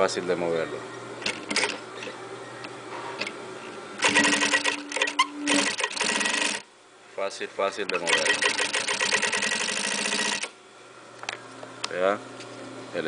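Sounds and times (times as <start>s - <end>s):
sewing machine stitching leather: 1.2s - 1.8s, 4.0s - 6.6s, 8.0s - 10.5s.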